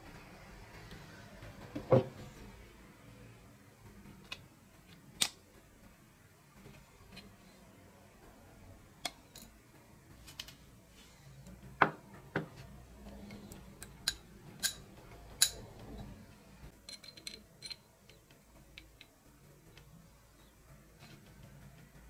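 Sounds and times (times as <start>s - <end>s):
metallic clicks of bell parts: 9.0s - 9.6s, 13.3s - 15.7s, 16.8s - 18.2s.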